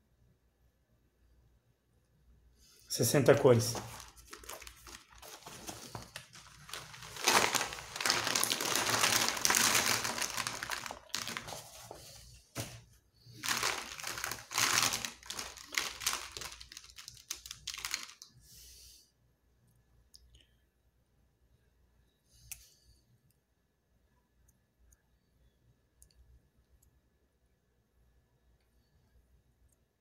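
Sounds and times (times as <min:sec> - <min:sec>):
cloth rustling: 0:03.4 - 0:18.2
plastic markers clattering: 0:03.8 - 0:12.0, 0:13.5 - 0:18.2.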